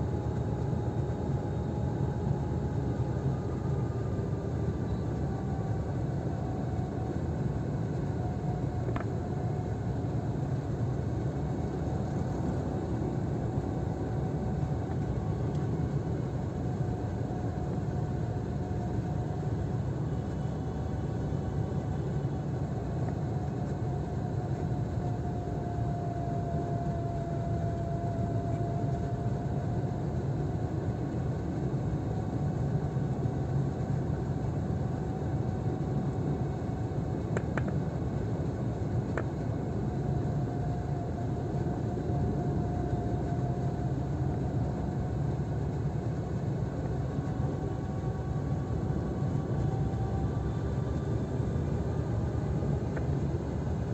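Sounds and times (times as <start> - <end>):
car engine and tyre rumble: 0.0 - 53.9
faint steady whine: 0.0 - 53.9.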